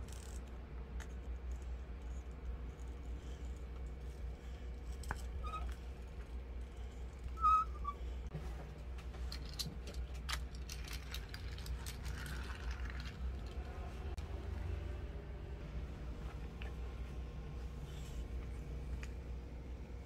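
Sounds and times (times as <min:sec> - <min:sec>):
steady low hum: 0:00.0 - 0:20.0
short high squeak: 0:07.4 - 0:08.0.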